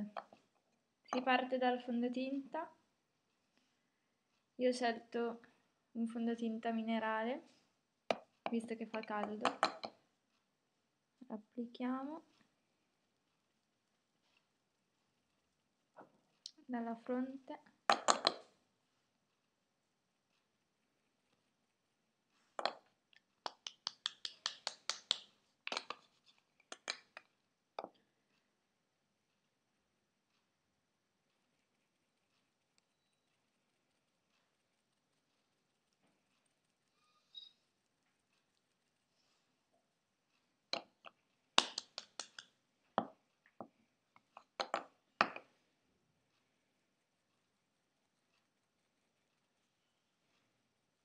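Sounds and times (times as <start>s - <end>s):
sharp taps and clicks of a jar: 8.1s - 10.0s, 17.9s - 18.5s, 22.6s - 22.8s, 23.4s - 26.0s, 26.7s - 28.0s, 40.7s - 43.2s, 44.2s - 45.5s.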